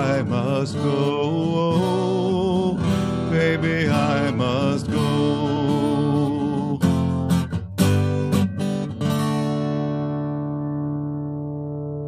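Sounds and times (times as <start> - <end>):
person singing with vibrato: 0.0 - 7.4
acoustic guitar strumming: 0.0 - 12.0.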